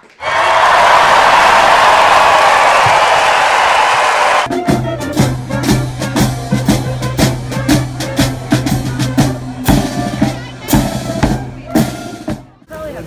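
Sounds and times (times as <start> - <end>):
marching brass band: 4.4 - 12.7
drum beating: 4.4 - 13.0.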